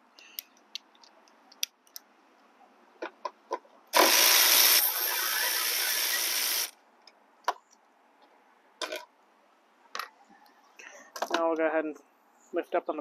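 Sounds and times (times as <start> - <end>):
electric ratchet spinning: 4.0 - 6.7.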